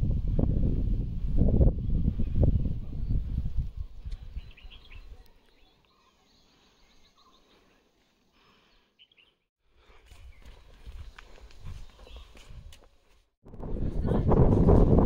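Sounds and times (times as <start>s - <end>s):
wind buffeting microphone: 0.0s - 5.2s, 10.0s - 15.0s
low thudding footsteps: 9.7s - 15.0s.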